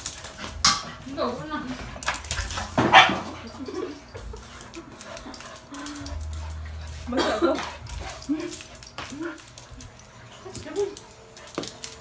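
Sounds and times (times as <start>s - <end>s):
dogs playing: 0.0s - 12.0s
dog barking: 2.8s - 3.4s.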